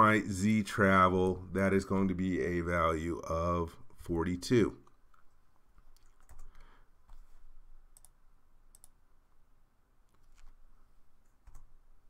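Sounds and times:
low room hiss: 0.0s - 12.0s
mouse and keyboard clicks: 10.1s - 10.6s.

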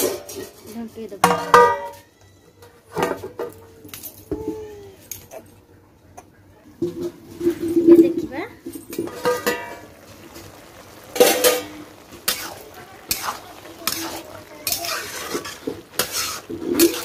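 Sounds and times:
metal lid clanking: 6.8s - 10.0s, 10.6s - 12.5s
metal spatula scraping pan: 6.8s - 10.0s, 10.6s - 17.0s.

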